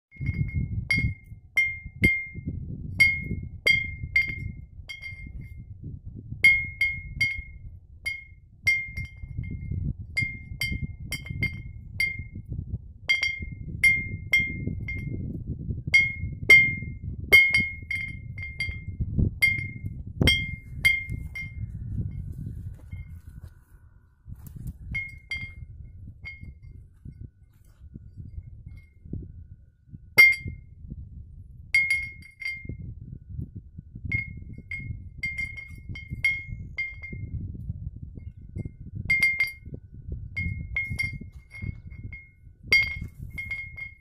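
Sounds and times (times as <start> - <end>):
wind rumbling: 0.1 - 44.0
glass bottle clinking: 10.2 - 12.4, 16.0 - 21.6, 30.2 - 30.6, 31.8 - 32.8, 39.1 - 39.7, 40.4 - 44.0.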